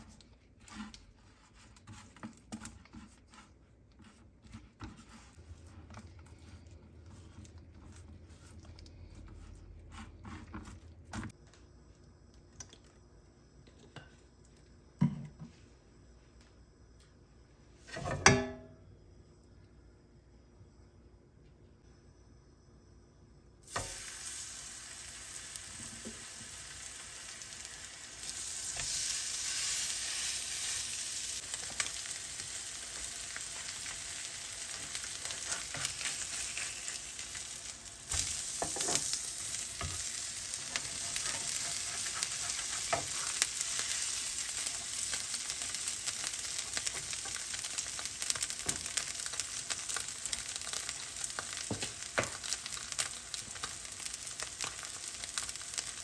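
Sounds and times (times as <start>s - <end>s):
fish sizzling in hot oil: 23.6s - 56.0s.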